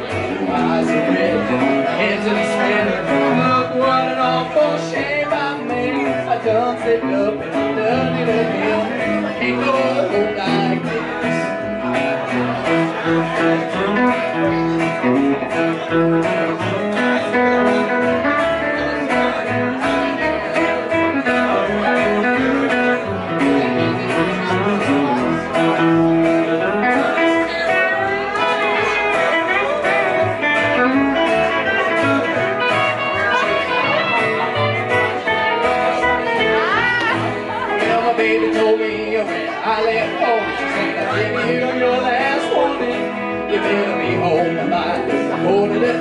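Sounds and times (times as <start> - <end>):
guitar playing: 0.0 - 46.0
live band music: 0.0 - 46.0.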